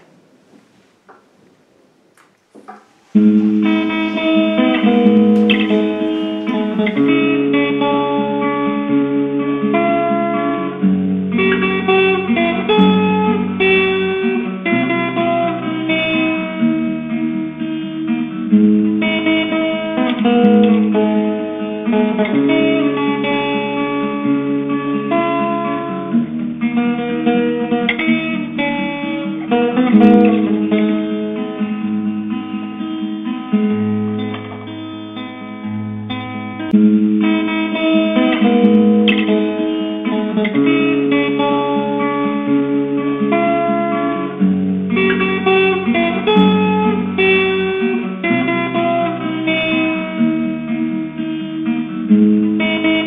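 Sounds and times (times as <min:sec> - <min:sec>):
faint knocks: 0:00.0 - 0:07.1
recorded guitar music: 0:00.0 - 0:53.0.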